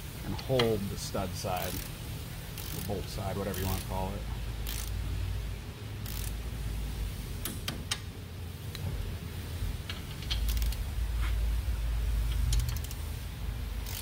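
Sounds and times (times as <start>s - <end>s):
low steady hum: 0.0s - 14.0s
wrench and socket clicking: 9.9s - 10.8s, 12.3s - 13.0s.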